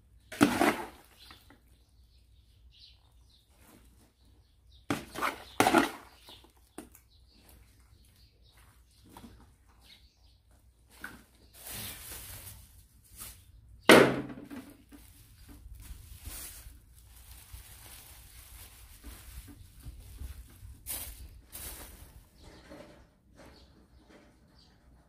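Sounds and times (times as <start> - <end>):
plastic bag rustling: 10.9 - 13.8, 14.5 - 22.5.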